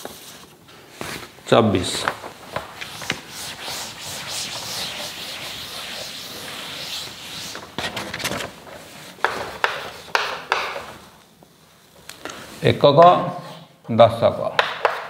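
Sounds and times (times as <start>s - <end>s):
duster wiping chalkboard: 0.0s - 11.2s
chalk tapping and scraping on board: 9.2s - 11.0s, 14.6s - 15.0s.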